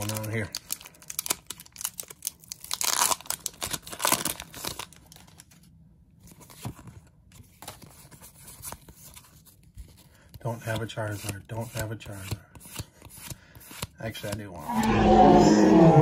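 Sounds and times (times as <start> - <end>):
foil wrapper ripping: 0.0 - 5.4
wrapper and cards crinkling: 0.0 - 5.7.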